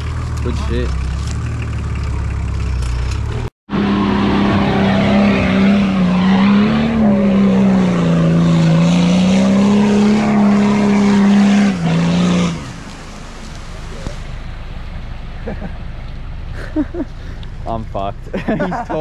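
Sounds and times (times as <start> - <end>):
engine revving with wheels spinning: 0.0 - 13.0.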